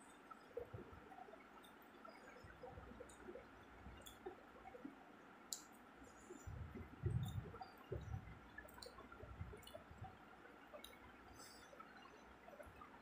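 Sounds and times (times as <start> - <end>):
chewing with wet mouth clicks: 4.0 - 4.3
low dull thumps: 6.5 - 8.4.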